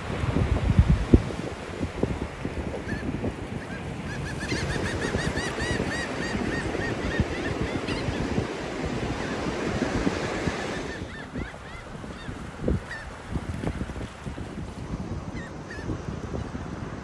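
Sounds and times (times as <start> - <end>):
surf washing: 0.0 - 17.0
wind: 0.0 - 17.0.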